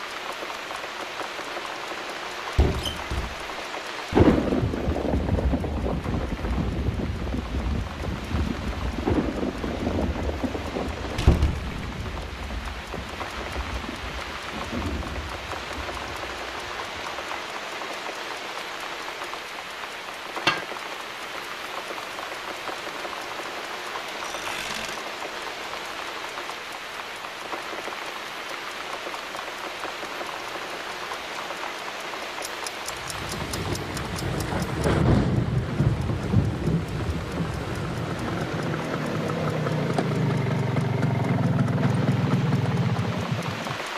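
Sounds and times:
steady rain: 0.0s - 43.9s
sharp knock: 2.6s - 3.3s, 20.5s - 20.8s
low rumble of thunder: 4.1s - 16.4s, 33.6s - 38.9s.

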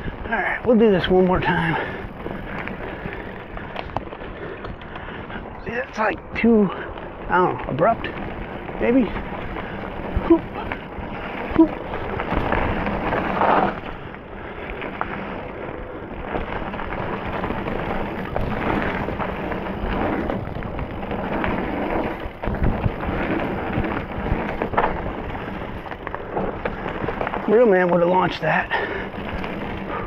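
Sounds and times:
bike tyre and drivetrain noise: 0.0s - 30.0s
wind buffeting microphone: 0.0s - 30.0s
bike knocks and rattles: 6.4s - 14.1s, 16.2s - 30.0s.

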